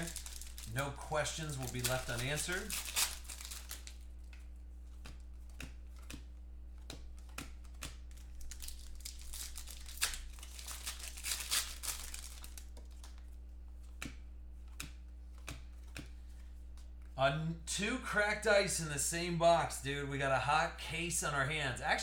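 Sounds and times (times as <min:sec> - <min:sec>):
foil wrappers tearing and crinkling: 0:00.0 - 0:04.1, 0:08.1 - 0:13.1
cards clicking and rustling: 0:00.0 - 0:17.2
faint low hum: 0:00.0 - 0:22.0.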